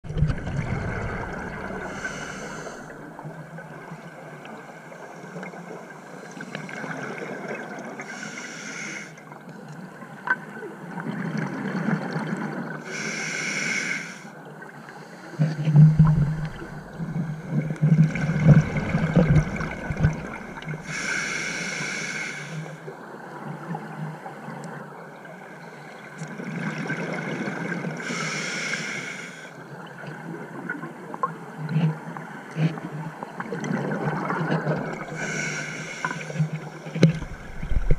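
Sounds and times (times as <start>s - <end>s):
gurgling exhaled bubbles: 0.0s - 3.3s, 15.4s - 20.9s, 33.4s - 35.5s, 36.2s - 37.9s
regulator hissing inhalation: 1.9s - 2.9s, 8.1s - 9.2s, 12.9s - 14.3s, 20.6s - 22.8s, 35.1s - 36.5s.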